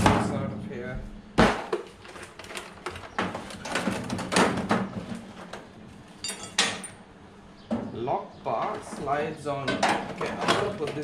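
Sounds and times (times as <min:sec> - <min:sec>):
tool cases knocking and clattering: 0:01.4 - 0:07.0, 0:09.7 - 0:11.0.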